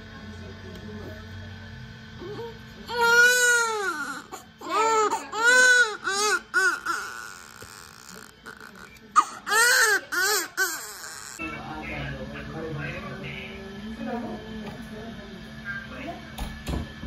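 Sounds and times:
baby crying: 0:02.2 - 0:11.4.

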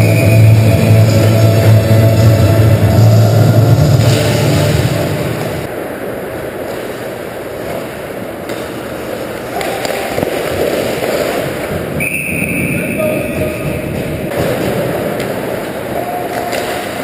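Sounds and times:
rock music: 0:00.0 - 0:05.7
skates carving ice: 0:06.5 - 0:17.0.

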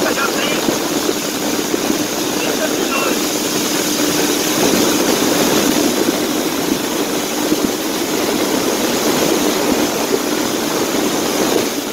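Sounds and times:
rushing hiss: 0:00.0 - 0:07.8
boat motor running: 0:00.0 - 0:11.9.

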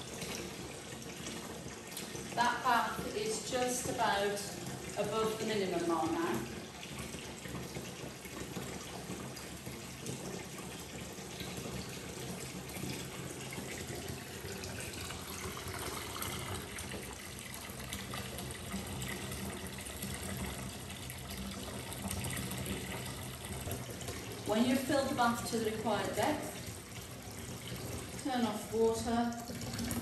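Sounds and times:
bath tap running into bathtub: 0:00.0 - 0:30.0.

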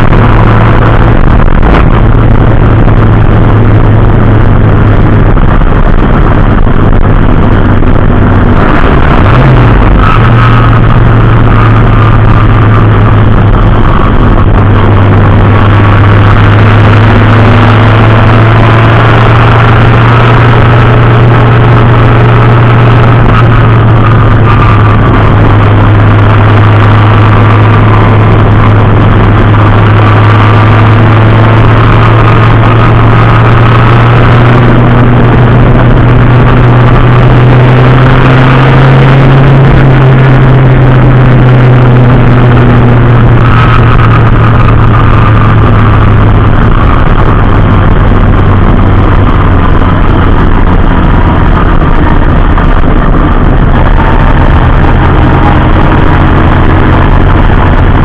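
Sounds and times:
race car engine running loud: 0:00.0 - 0:58.0.

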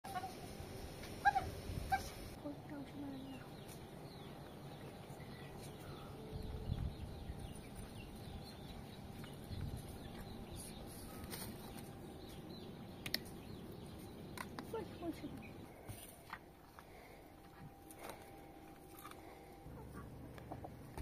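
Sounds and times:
chickens clucking: 0:01.0 - 0:02.3, 0:19.0 - 0:21.0.

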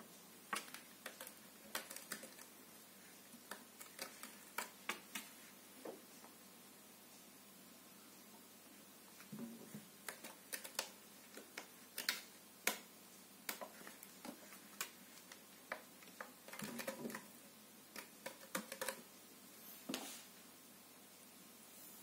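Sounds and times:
faint clicks and taps: 0:00.5 - 0:02.5, 0:03.3 - 0:06.4, 0:09.2 - 0:19.1.

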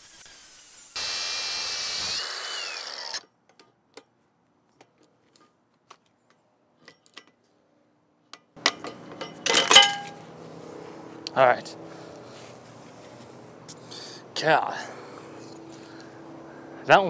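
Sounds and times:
angle grinder cutting metal: 0:00.0 - 0:03.3.

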